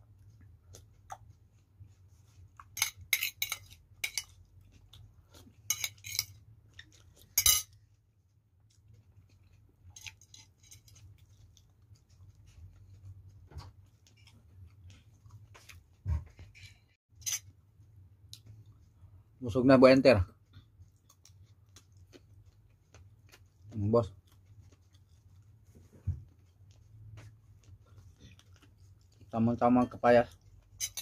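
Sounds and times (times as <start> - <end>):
metal spoon clinking on glass: 2.8 - 4.3, 7.4 - 7.7.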